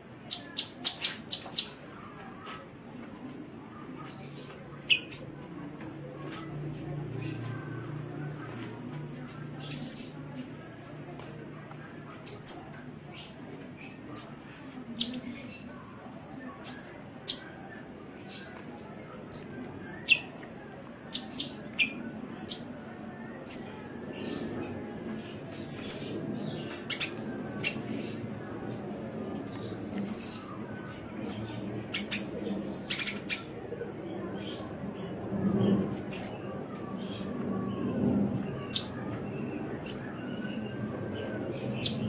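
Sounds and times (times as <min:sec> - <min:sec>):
faint low background noise: 0:00.0 - 0:42.0
bird chirping: 0:00.3 - 0:01.8, 0:04.0 - 0:05.5, 0:09.6 - 0:10.2, 0:12.2 - 0:15.7, 0:16.6 - 0:17.5, 0:19.3 - 0:20.3, 0:23.4 - 0:24.5, 0:25.2 - 0:28.8, 0:36.1 - 0:37.3, 0:39.8 - 0:42.0.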